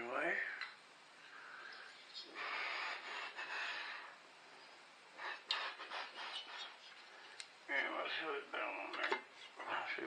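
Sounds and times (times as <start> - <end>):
breathy rush of noise: 1.1 - 8.3.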